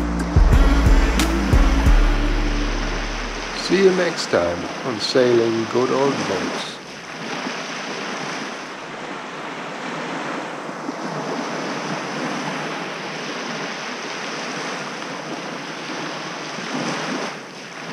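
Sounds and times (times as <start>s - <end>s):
waves washing onto beach: 1.3s - 17.9s.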